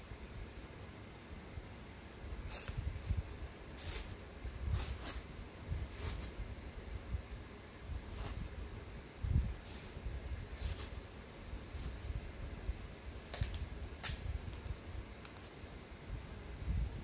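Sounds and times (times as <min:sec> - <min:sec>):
tape peeling: 0:02.3 - 0:06.8, 0:09.6 - 0:16.3.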